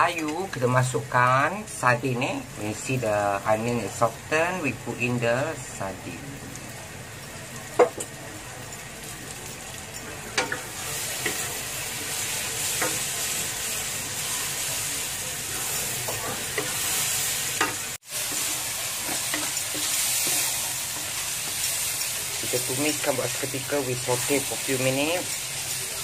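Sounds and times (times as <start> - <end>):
food frying in hot oil: 0.0 - 26.0
spatula scraping a wok: 10.4 - 25.8.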